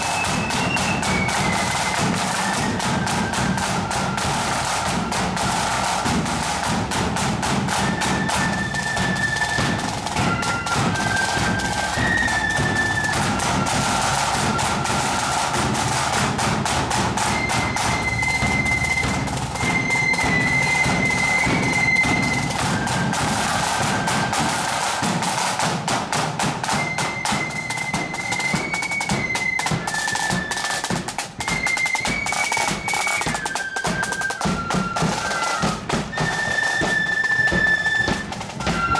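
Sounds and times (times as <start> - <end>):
flute melody: 0.0 - 38.9
snare drumming: 0.0 - 38.9
bass drum: 9.7 - 23.2.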